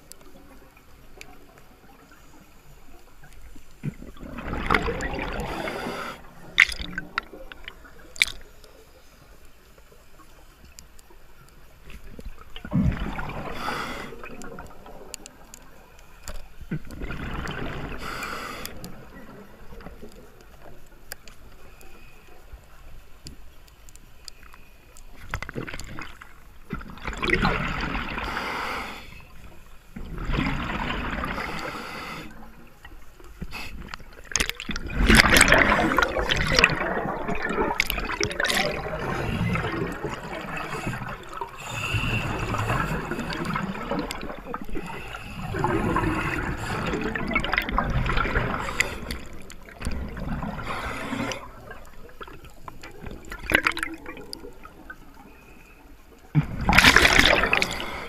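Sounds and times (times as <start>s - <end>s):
underwater breath bubbling: 3.8s - 8.5s, 12.6s - 15.2s, 16.7s - 19.6s, 26.7s - 29.4s, 30.0s - 32.6s, 33.4s - 58.0s.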